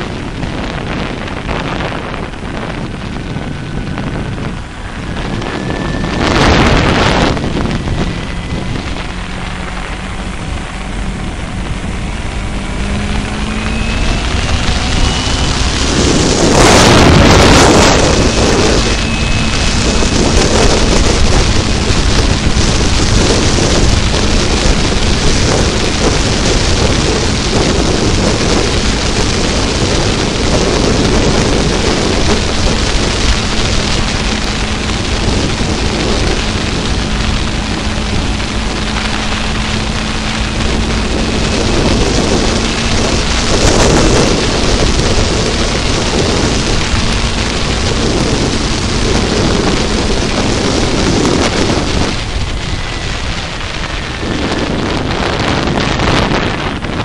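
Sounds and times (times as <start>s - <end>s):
motorcycle engine accelerating: 0.0s - 57.0s
wind buffeting on microphone: 0.0s - 57.0s.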